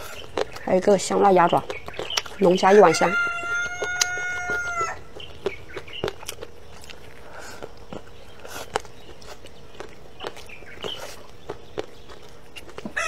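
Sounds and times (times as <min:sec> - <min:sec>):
clicks and smacks of eating: 0:00.0 - 0:13.0
poultry chirping: 0:00.0 - 0:13.0
rooster crowing: 0:02.6 - 0:05.1.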